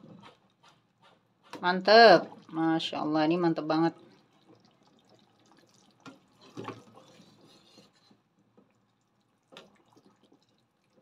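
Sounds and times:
liquid splashing and dripping: 1.9 - 3.0, 3.6 - 11.0.

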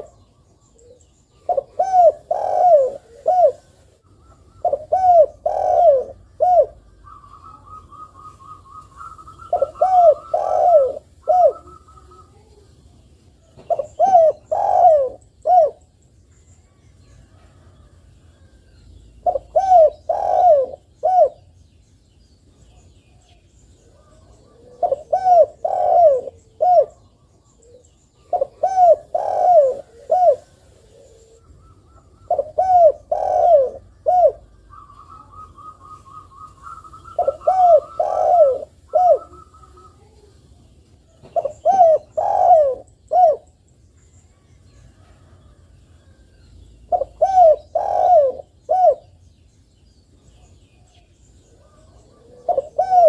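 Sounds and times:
dove cooing: 0.0 - 12.6, 13.4 - 15.9, 19.2 - 21.5, 23.8 - 40.4, 41.1 - 43.6, 46.9 - 49.2, 51.5 - 53.0.

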